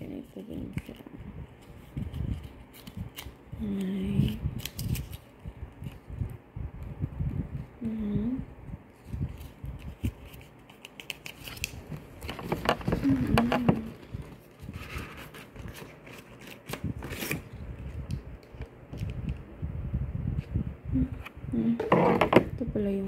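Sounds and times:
cardboard rustling and scraping: 11.4 - 17.5.

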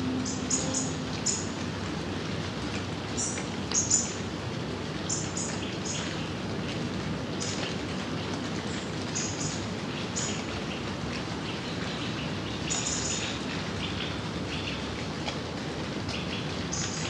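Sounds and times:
gentle rain falling: 0.0 - 17.0
birds chirping: 0.1 - 1.5, 5.0 - 6.4, 7.3 - 14.9.

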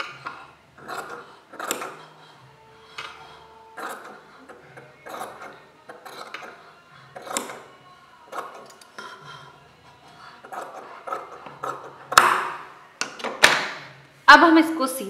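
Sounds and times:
scissors snipping fabric: 0.8 - 2.0, 3.8 - 6.6, 7.2 - 7.6, 10.5 - 12.4.

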